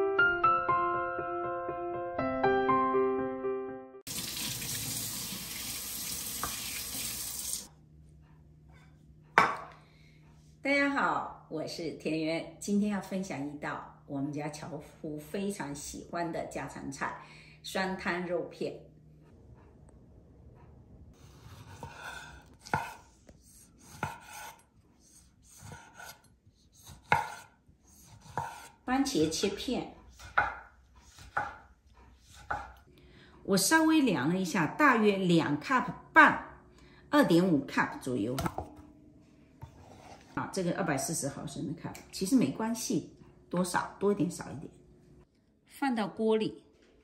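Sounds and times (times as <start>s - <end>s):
faucet water splashing in sink: 4.1s - 7.7s
knife scraping through tomato: 21.2s - 32.8s.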